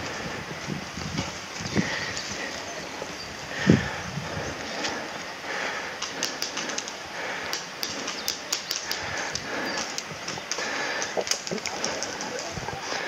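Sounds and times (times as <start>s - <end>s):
steady outdoor hiss: 0.0s - 13.0s
airsoft gunfire clicks: 6.0s - 12.2s.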